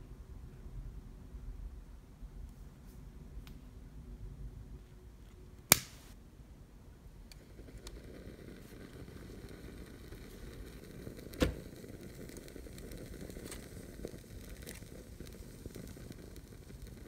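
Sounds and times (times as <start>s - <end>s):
small flame crackling: 5.1s - 17.0s.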